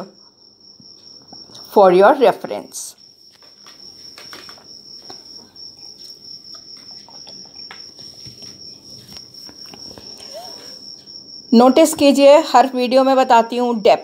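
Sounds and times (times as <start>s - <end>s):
faint ticks and scrapes: 3.2s - 11.2s.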